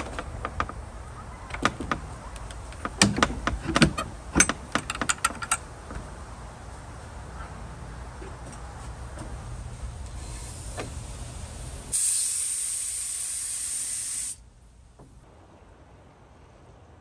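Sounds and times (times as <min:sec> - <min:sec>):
paint spray gun hissing: 0:10.2 - 0:14.4.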